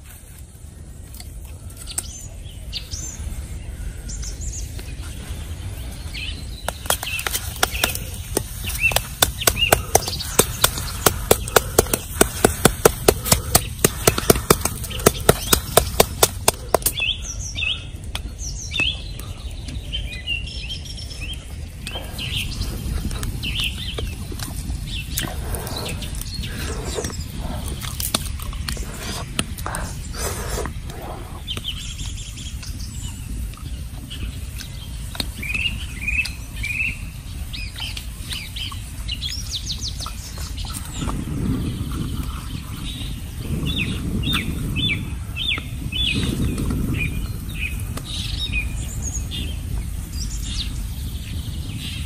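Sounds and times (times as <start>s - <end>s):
small birds chirping: 0.0s - 52.0s
wooden stick tapping and scraping: 6.7s - 17.0s.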